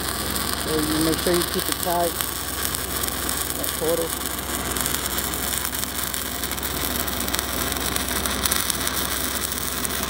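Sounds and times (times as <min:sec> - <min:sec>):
welding arc crackling hiss: 0:00.0 - 0:10.0.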